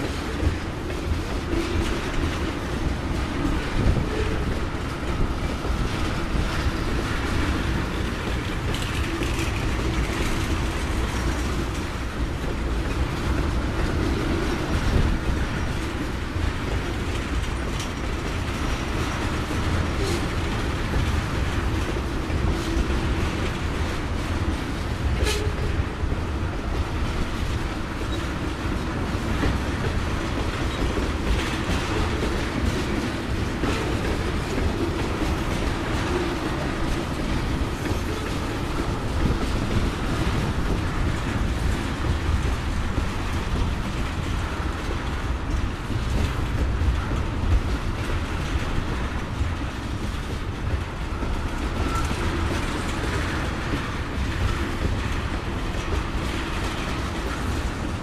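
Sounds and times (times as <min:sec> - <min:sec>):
train wheels rattling on rails: 0:00.0 - 0:58.0.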